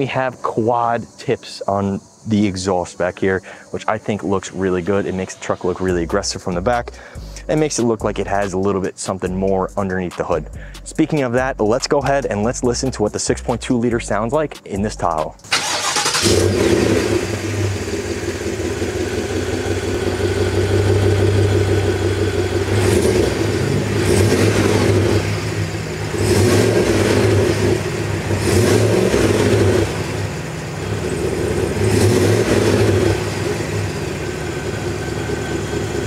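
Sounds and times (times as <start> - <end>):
car engine idling: 0.0 - 36.0
car engine revving: 15.4 - 36.0.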